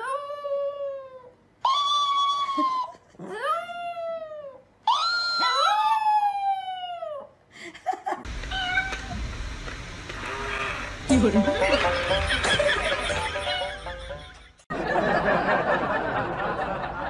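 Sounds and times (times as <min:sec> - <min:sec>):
steady background hiss: 0:07.5 - 0:17.0.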